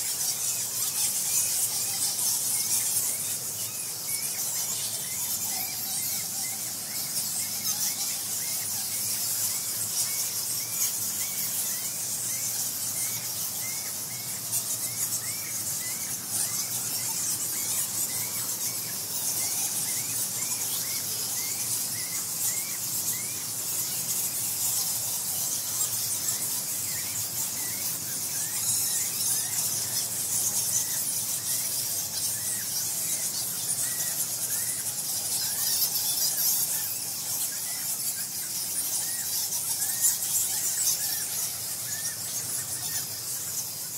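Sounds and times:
bats squeaking and chattering: 0.0 - 43.9.

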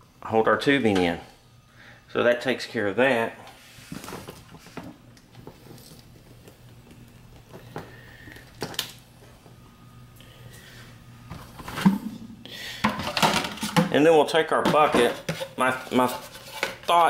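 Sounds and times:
faint steady low hum: 0.0 - 17.0.

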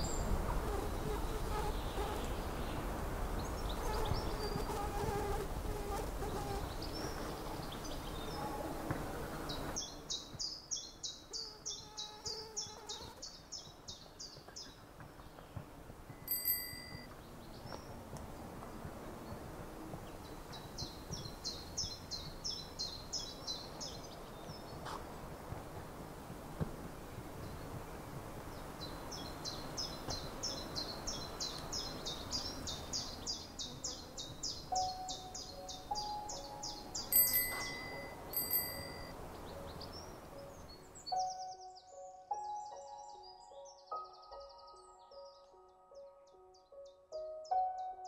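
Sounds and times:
bell-like ding: 16.2 - 17.1, 37.1 - 39.2
bird fast high chirps: 34.7 - 39.1.

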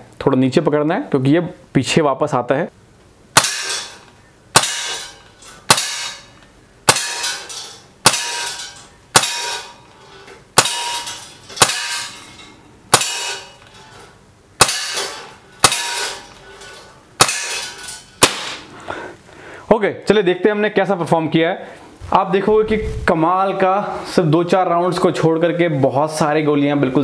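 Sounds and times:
air pistol shots cracking: 3.4 - 9.8, 10.6 - 12.2, 12.9 - 13.6, 14.6 - 16.3, 17.2 - 18.7.

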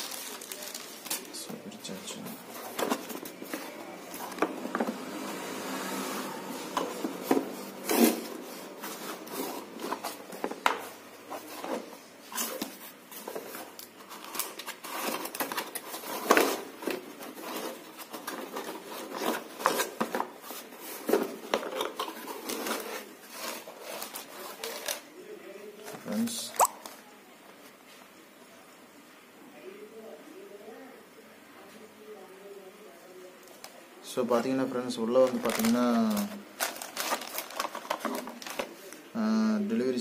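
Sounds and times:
cardboard flaps scraping: 2.3 - 24.9.

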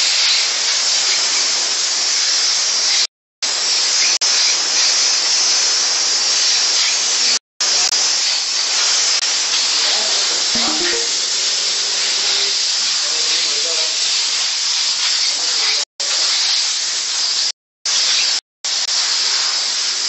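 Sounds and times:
steam blasting hiss: 13.0 - 20.0.

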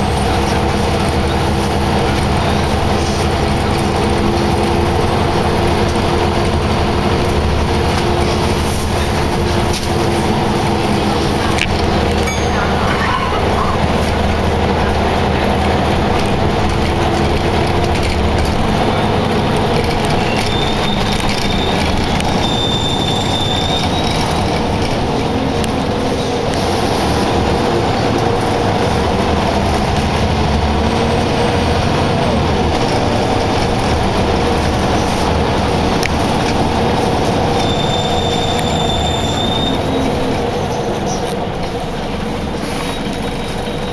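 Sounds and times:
bus engine rumbling: 0.0 - 43.9
high-pitched squeal: 8.3 - 14.2, 20.1 - 27.2, 37.4 - 41.3.

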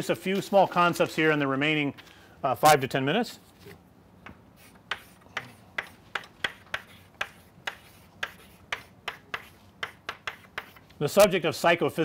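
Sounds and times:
chalk writing on blackboard: 4.6 - 11.0.

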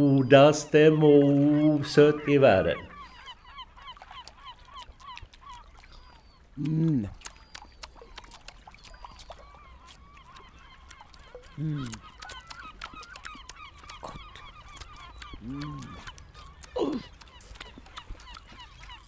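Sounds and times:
birds chirping: 0.0 - 19.0
person humming mmm: 6.6 - 7.3, 11.5 - 12.4, 15.4 - 17.6.

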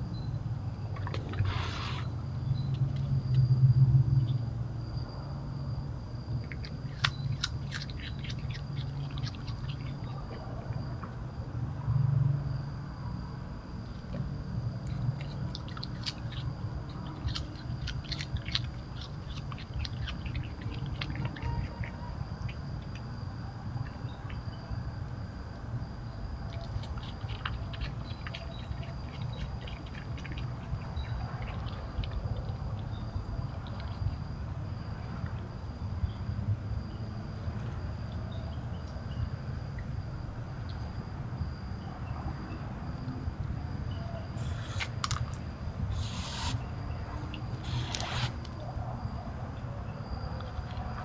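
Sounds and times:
steady low hum: 0.0 - 51.0
animals chewing food: 6.4 - 11.2, 13.8 - 25.3, 26.4 - 35.6, 44.4 - 48.6, 50.4 - 51.0.

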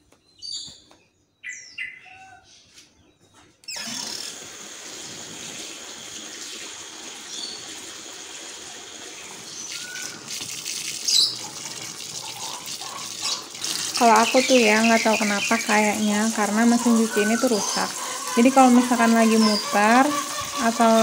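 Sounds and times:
bird chirps: 0.2 - 3.8, 9.5 - 10.2, 14.0 - 16.3
water running from a hose: 3.7 - 21.0.

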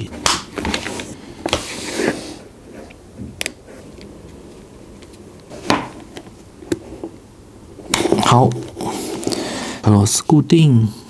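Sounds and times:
headphone rustle: 7.8 - 9.5.

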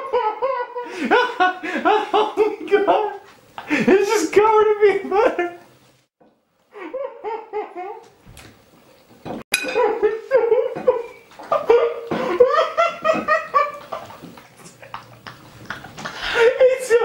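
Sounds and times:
people laughing hard: 0.0 - 4.1, 9.8 - 17.0
fork clinking on a plate: 9.5 - 9.9.

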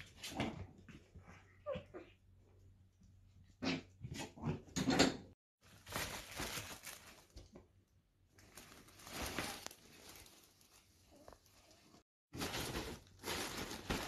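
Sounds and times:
fabric bag rustling: 8.4 - 14.0.

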